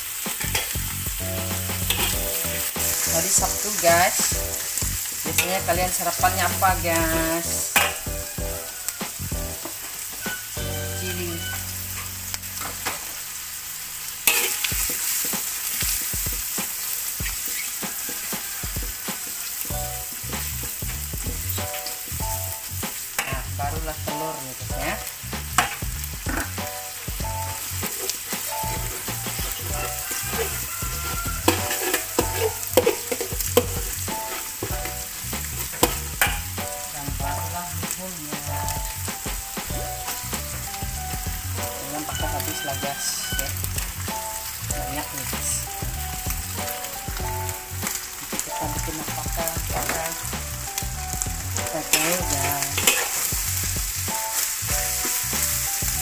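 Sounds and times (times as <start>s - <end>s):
spatula clacking against wok: 0.0s - 3.1s, 7.8s - 10.5s, 14.3s - 21.0s, 21.6s - 23.5s, 24.8s - 36.9s, 51.2s - 56.0s
meat sizzling in oil: 0.0s - 56.0s
spatula stirring and scraping: 0.1s - 13.0s, 14.2s - 23.9s, 24.6s - 56.0s.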